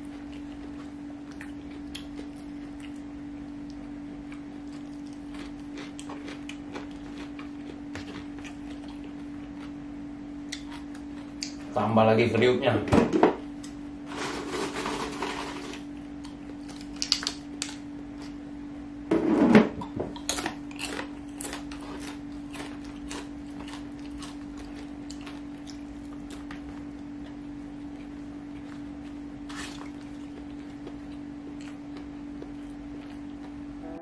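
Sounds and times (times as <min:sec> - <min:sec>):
crackers crunched and chewed: 0:00.0 - 0:09.8, 0:10.5 - 0:11.6, 0:15.7 - 0:18.4, 0:20.2 - 0:33.6
steady low hum: 0:00.0 - 0:34.0.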